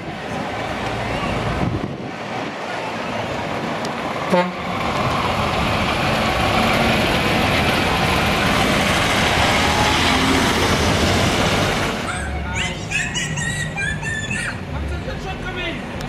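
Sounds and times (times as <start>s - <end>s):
truck diesel engine driving past: 0.0s - 14.9s
tyre and road noise: 0.0s - 16.0s.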